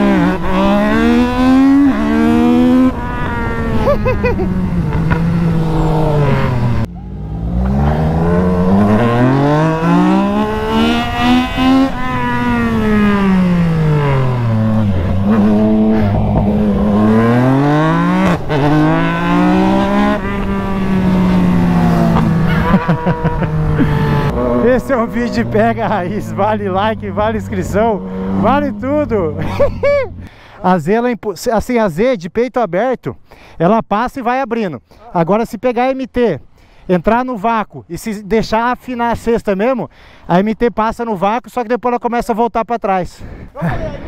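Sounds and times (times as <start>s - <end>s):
motorcycle engine revving hard: 0.0s - 30.2s
wind rushing over microphone: 7.7s - 30.3s.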